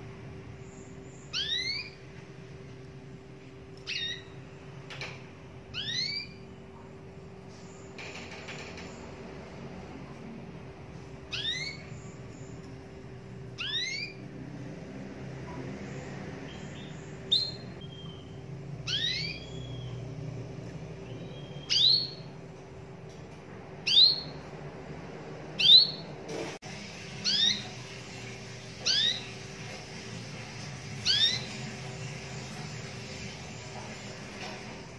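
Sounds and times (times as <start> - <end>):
faint steady hum: 0.0 - 34.8
canary whistled call notes: 1.2 - 2.0, 3.8 - 4.4, 5.7 - 6.5, 11.3 - 12.1, 13.6 - 14.2, 16.5 - 20.0, 21.0 - 22.3, 23.8 - 24.4, 25.6 - 26.1, 27.2 - 27.8, 28.7 - 29.5, 31.0 - 33.4.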